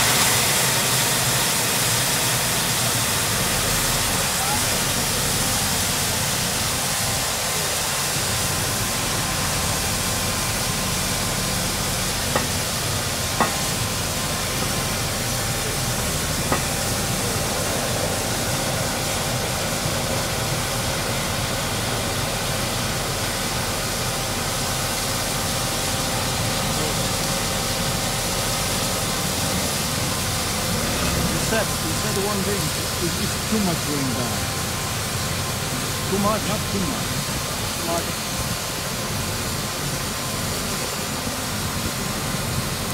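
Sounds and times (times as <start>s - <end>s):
machine rushing hiss: 23.6s - 40.1s.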